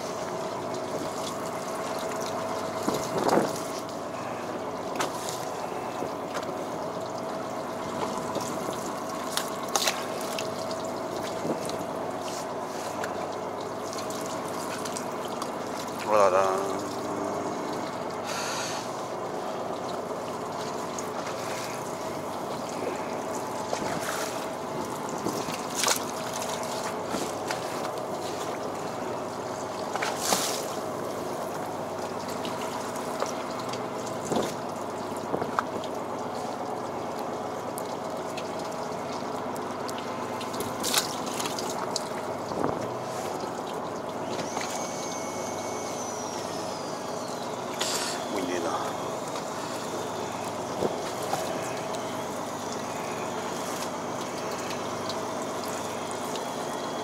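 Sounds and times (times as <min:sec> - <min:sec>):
boat machinery hum: 0:00.0 - 0:57.0
water trickling and splashing: 0:00.0 - 0:57.0
high falling whine: 0:16.0 - 0:19.4.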